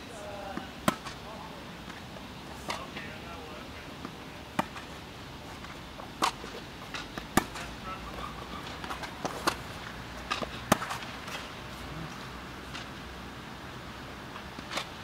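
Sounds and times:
tennis ball struck by rackets: 0.5s - 1.2s, 2.6s - 3.0s, 4.0s - 5.0s, 6.2s - 11.5s.

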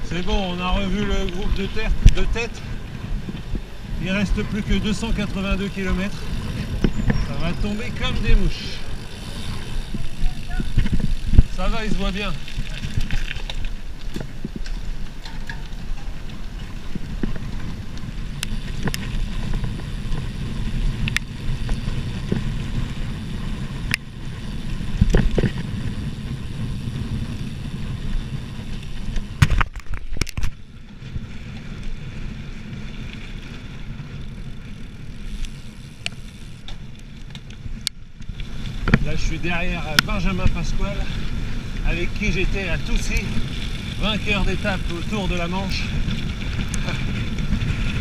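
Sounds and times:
wind on microphone: 0.0s - 30.5s
bike tyres rumbling on gravel: 0.0s - 48.0s.

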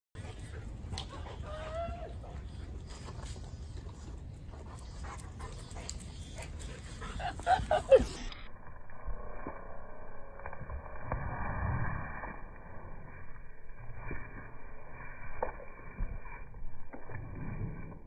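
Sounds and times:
dog whining: 1.1s - 2.4s.

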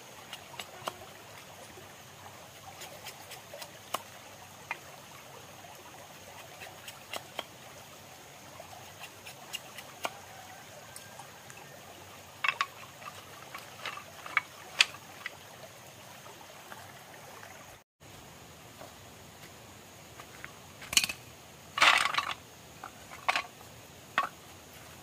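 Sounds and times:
stream trickling: 0.0s - 19.0s, 19.9s - 25.0s
bamboo slats clicking: 12.4s - 15.3s, 20.8s - 21.2s, 21.8s - 23.5s, 24.2s - 24.4s.

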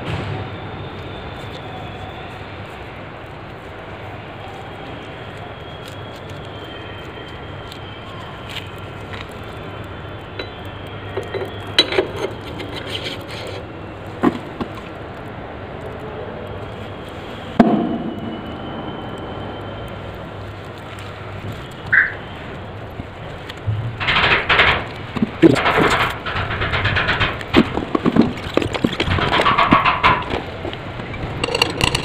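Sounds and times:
steady background hum: 0.0s - 32.0s
metal axle knocking and clinking: 11.2s - 13.2s, 23.6s - 32.0s.

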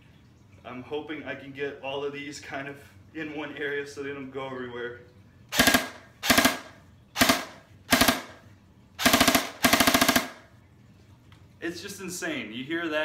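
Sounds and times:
airsoft rifle automatic bursts: 5.5s - 8.4s, 9.0s - 10.5s.

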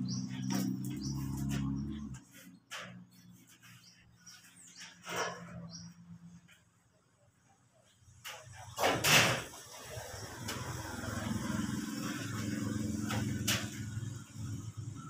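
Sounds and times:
motorcycle engine running: 0.0s - 2.2s.

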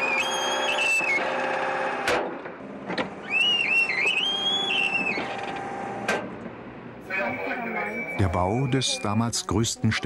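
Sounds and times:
high metallic squeal: 7.1s - 9.2s.

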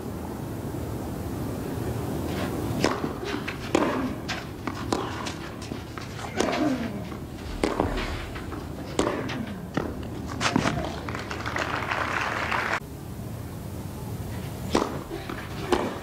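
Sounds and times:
tennis racket strikes: 2.8s - 10.1s
tennis ball bouncing: 2.8s - 10.2s, 14.7s - 16.0s
crowd murmur: 6.2s - 12.8s.

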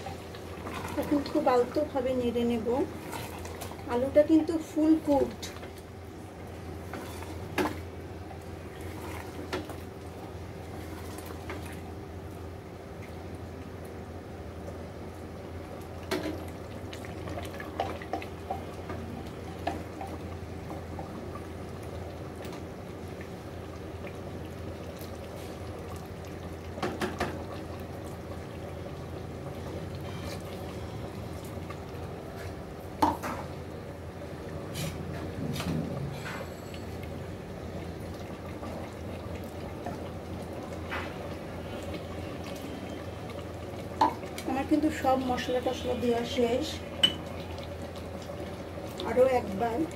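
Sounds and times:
curry simmering: 0.0s - 49.9s
wooden spatula stirring: 6.8s - 7.8s
spatula scraping pot: 6.9s - 7.5s.

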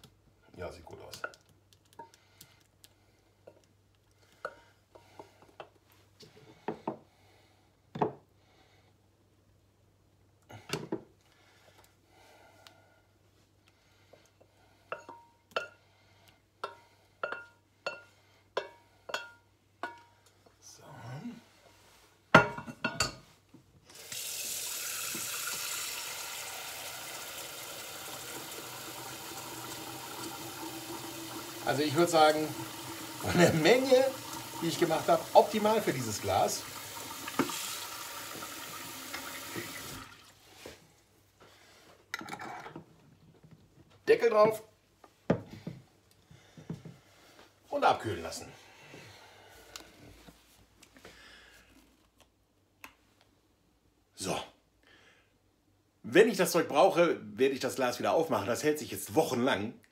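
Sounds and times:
tap water running into sink: 23.9s - 40.4s.

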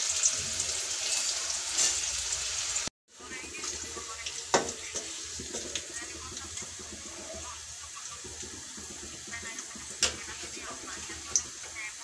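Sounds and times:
onions sizzling in hot oil: 0.0s - 12.0s
spatula scraping pan: 0.1s - 2.4s, 3.6s - 12.0s
metal spatula knocking pan: 4.5s - 7.3s, 8.2s - 11.8s.

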